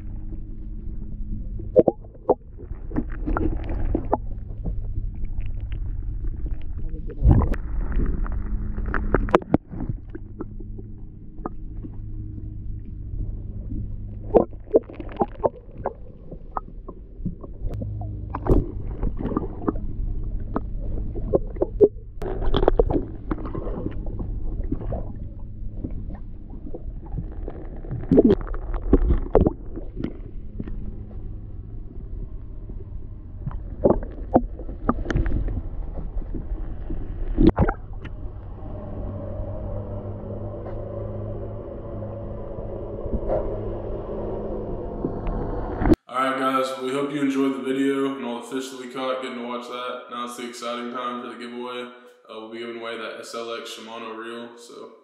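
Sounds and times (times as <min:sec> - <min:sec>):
water splashes: 0:00.0 - 0:46.0
muffled underwater low hum: 0:00.0 - 0:54.8.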